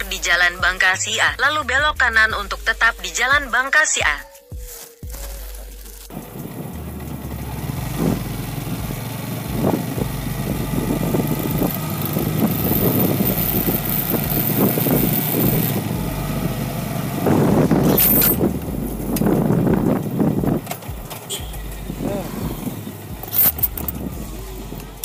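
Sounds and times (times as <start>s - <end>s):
motorcycle engine running: 5.9s - 25.0s
road and wind noise: 6.1s - 25.0s.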